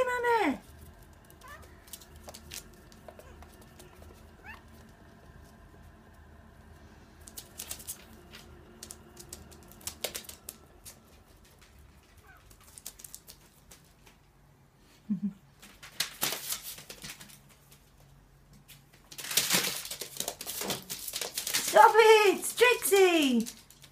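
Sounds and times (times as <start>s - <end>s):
paws and claws tapping on tiles: 0.6s - 5.9s, 7.2s - 14.3s, 15.6s - 21.8s.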